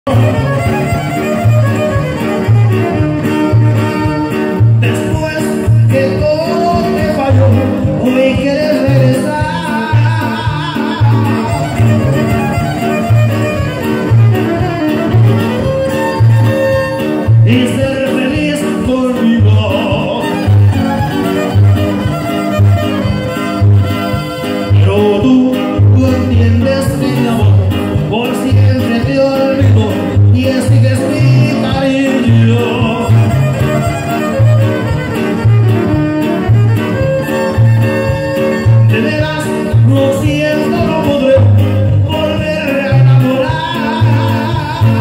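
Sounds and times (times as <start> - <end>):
violin melody: 0.1 - 4.9, 10.6 - 17.6, 19.8 - 24.9, 31.1 - 39.8
low bass beat: 0.1 - 45.0
strummed strings: 0.1 - 45.0.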